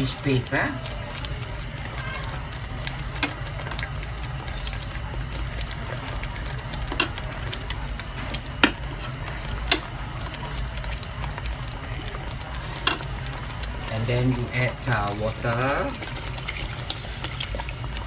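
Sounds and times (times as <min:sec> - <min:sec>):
gravy simmering in a pot: 0:00.0 - 0:18.0
ticks and pops: 0:00.8 - 0:13.9.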